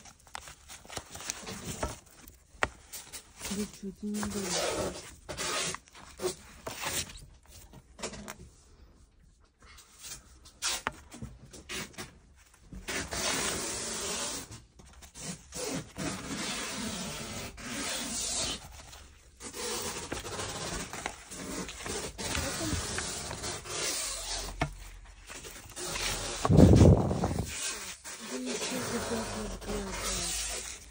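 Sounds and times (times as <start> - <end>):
paper record sleeves rustling: 0.0 - 8.2, 10.0 - 30.9.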